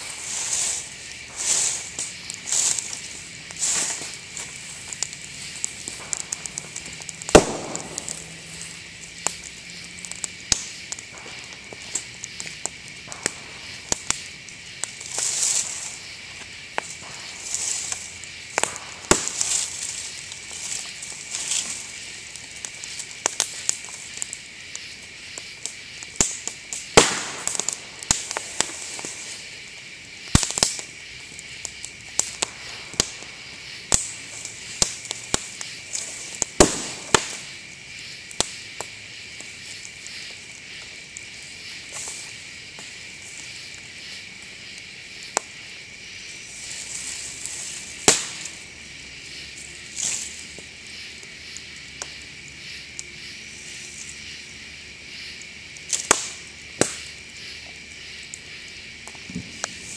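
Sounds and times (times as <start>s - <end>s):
bonfire crackling: 0.0s - 59.9s
sharp pops: 0.6s - 14.2s, 16.7s - 21.7s, 26.2s - 29.1s, 30.3s - 30.8s, 33.9s - 37.4s, 48.0s - 48.6s
bamboo bursting with loud bangs: 5.9s - 8.5s, 18.6s - 19.7s, 26.9s - 28.6s, 36.4s - 37.4s, 47.9s - 48.6s.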